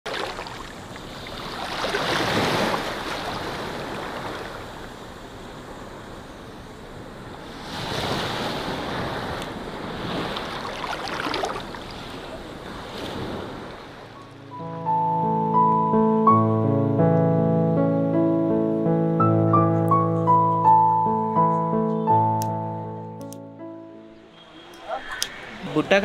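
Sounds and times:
waves breaking on sandy shore: 0:00.1 - 0:14.4.

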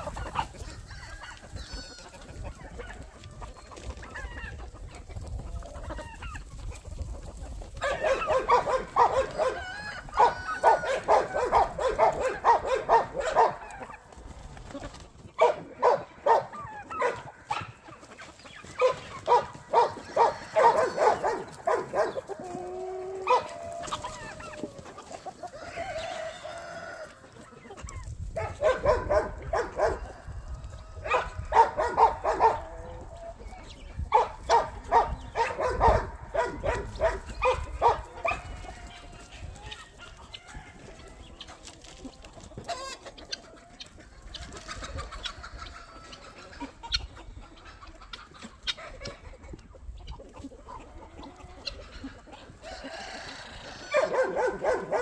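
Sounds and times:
chickens clucking: 0:00.0 - 0:55.0
rooster crowing: 0:07.8 - 0:13.4, 0:19.8 - 0:22.1, 0:25.5 - 0:27.2, 0:52.6 - 0:55.0.

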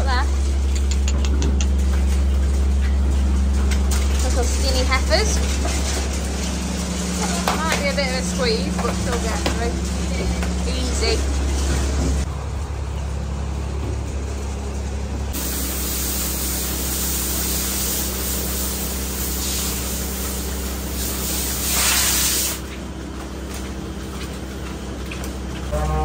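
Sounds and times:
low machine hum: 0:00.0 - 0:26.0
water hose spraying: 0:01.6 - 0:12.3, 0:15.3 - 0:22.8.

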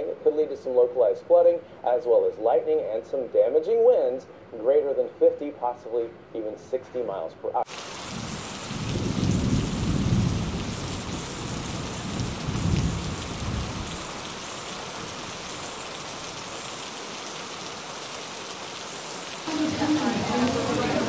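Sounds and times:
heavy rain falling: 0:07.7 - 0:21.0
thunder rumbles: 0:08.1 - 0:14.0.

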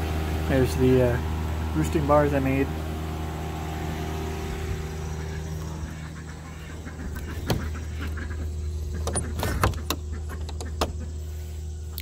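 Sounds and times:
steady low hum: 0:00.0 - 0:12.0
shed door knocking: 0:07.2 - 0:08.0.

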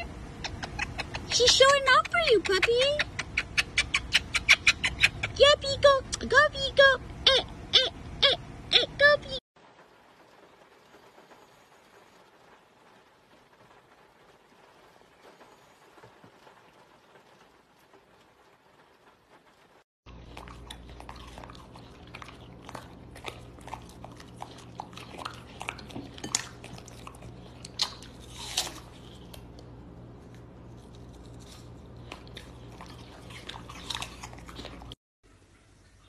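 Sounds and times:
dog chewing with wet crunches: 0:20.1 - 0:35.0.

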